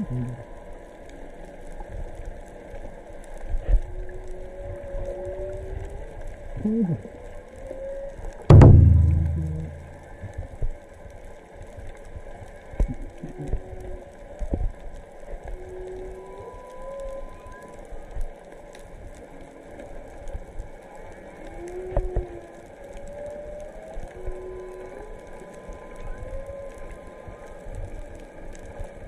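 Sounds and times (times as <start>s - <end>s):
low knocks near microphone: 8.5s - 10.0s
whale song moaning tones: 21.5s - 27.5s.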